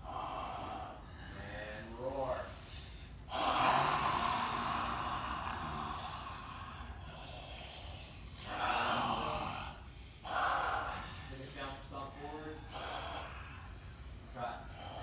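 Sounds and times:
men hissing monster roars: 3.3s - 15.0s.

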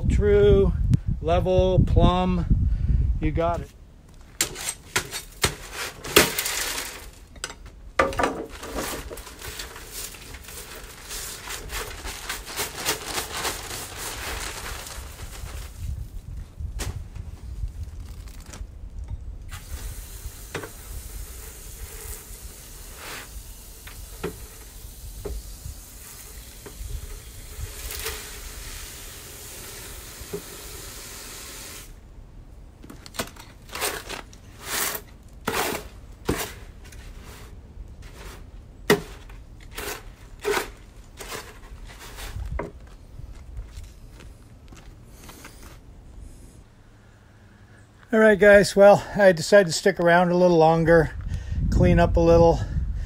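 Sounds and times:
hoe scraping wet concrete: 4.4s - 7.3s, 33.6s - 42.6s
hose water running into wheelbarrow: 19.5s - 32.0s.

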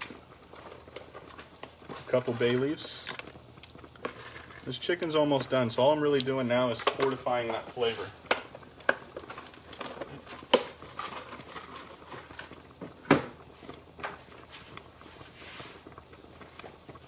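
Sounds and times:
stock simmering in a pot: 0.0s - 17.0s
kitchen items clacking: 6.7s - 13.4s.

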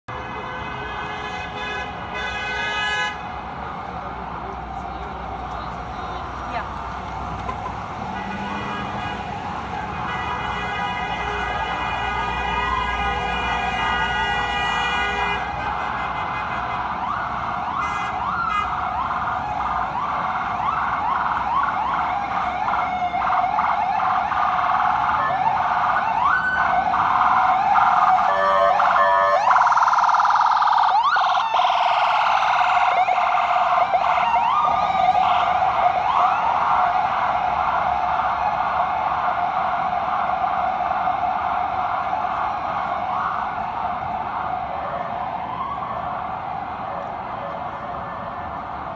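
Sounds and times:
steady siren tone: 11.0s - 48.9s
ambulance siren wailing and yelping: 11.1s - 48.9s.

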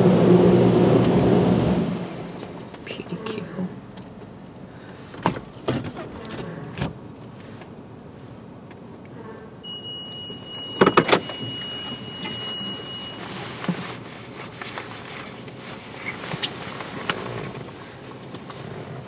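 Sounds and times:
high steady beep: 9.6s - 13.4s.

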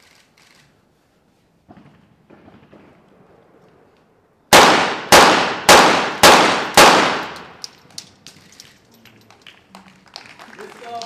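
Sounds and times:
pistol shots: 4.5s - 7.6s
faint clicks and shots: 6.2s - 10.3s.

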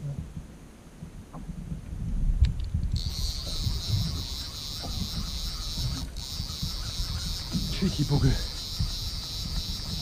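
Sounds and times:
wind rumble on microphone: 0.0s - 10.0s
fishing reel whirring: 2.9s - 10.0s.

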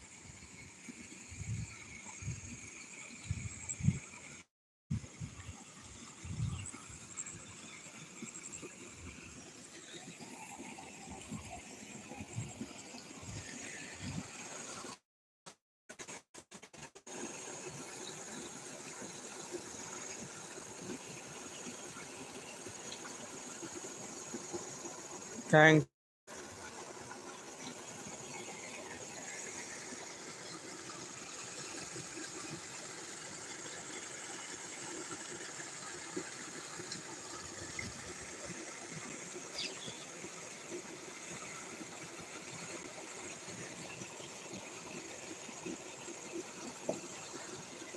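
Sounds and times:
water splashing into a canal: 17.0s - 47.9s.

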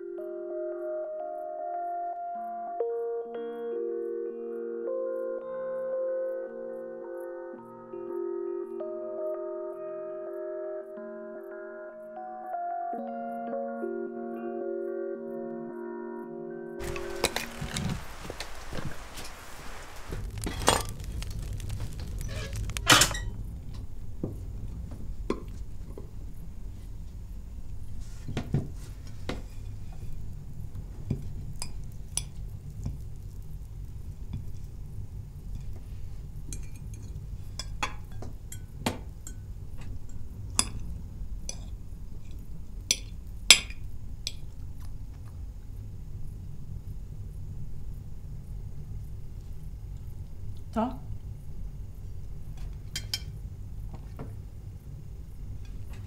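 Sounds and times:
steady low hum: 16.9s - 28.2s
cutlery clinking on plates: 52.9s - 53.3s.

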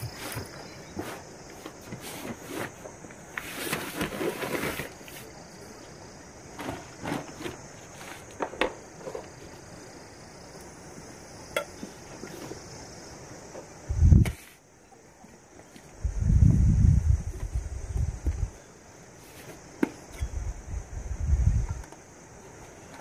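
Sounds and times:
foam mat and fabric rustling: 0.0s - 5.4s, 6.5s - 9.6s
high insect trill: 0.0s - 23.0s.

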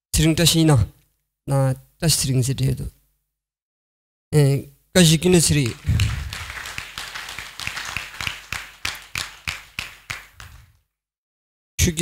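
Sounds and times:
crowd clapping in unison: 5.3s - 10.8s.

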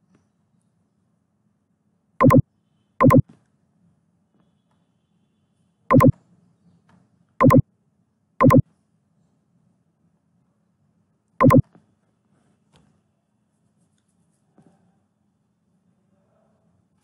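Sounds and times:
computer mouse clicks: 2.2s - 2.4s, 3.0s - 3.2s, 5.9s - 6.1s, 7.4s - 7.6s, 8.4s - 8.6s, 11.4s - 11.6s.

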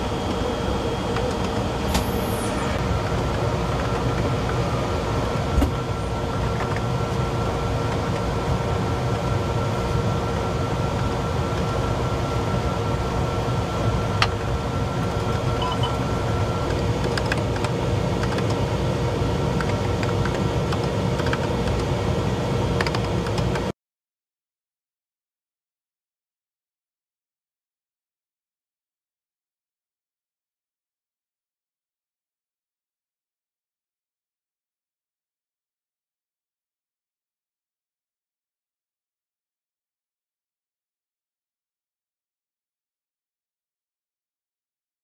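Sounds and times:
ventilation and equipment hum: 0.0s - 23.7s.

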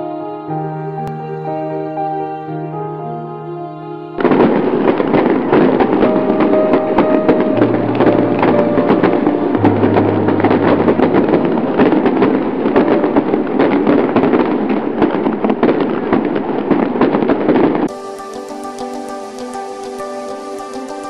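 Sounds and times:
music with steady tones: 0.0s - 13.8s, 17.9s - 21.0s
fireworks crackling and popping: 4.2s - 21.0s.

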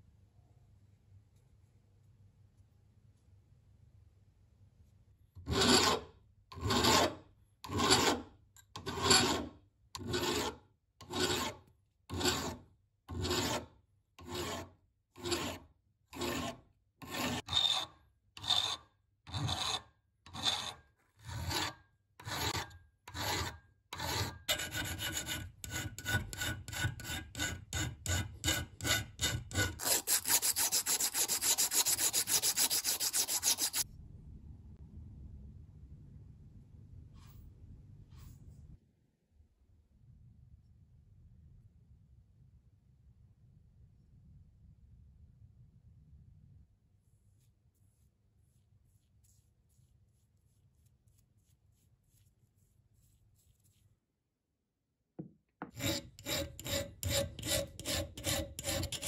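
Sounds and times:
file rasping on metal: 5.4s - 33.8s, 55.6s - 59.0s.

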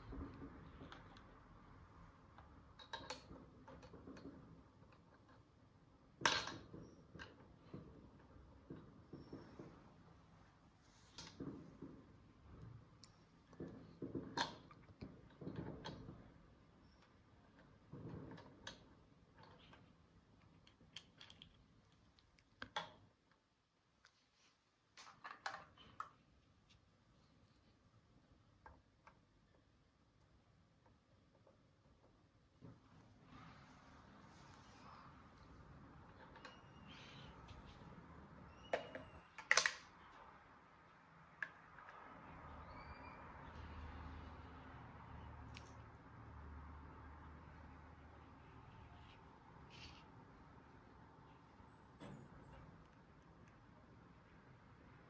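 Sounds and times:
small objects clicking and tapping: 2.3s - 5.5s, 11.1s - 23.4s, 38.5s - 40.3s.

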